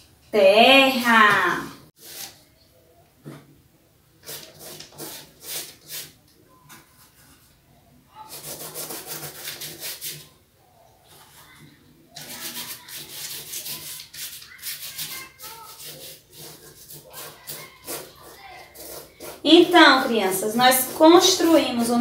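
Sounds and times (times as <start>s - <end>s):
paint scrubbing on paper: 2.0s - 2.4s, 4.2s - 6.2s, 8.2s - 10.4s, 12.2s - 22.0s.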